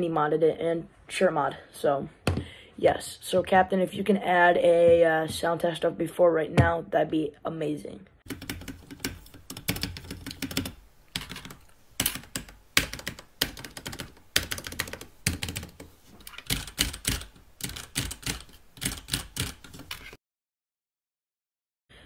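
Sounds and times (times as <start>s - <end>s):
mechanical keyboard typing: 8.3s - 20.2s.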